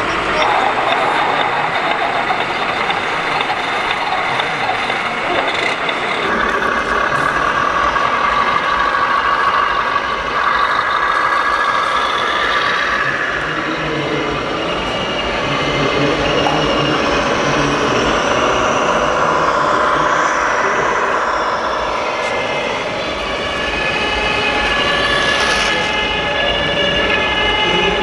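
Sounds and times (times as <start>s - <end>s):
model truck engine sound: 0.0s - 28.0s.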